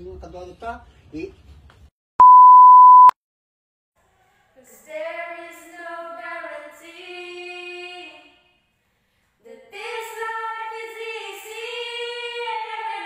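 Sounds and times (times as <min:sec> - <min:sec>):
high-pitched test tone beep: 0:02.2 - 0:03.2
woman singing unaccompanied: 0:09.5 - 0:13.0.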